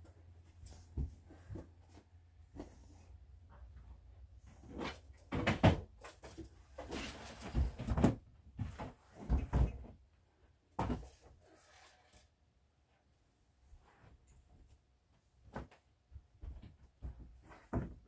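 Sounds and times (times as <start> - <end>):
household items knocking and bumping: 4.8 - 9.9.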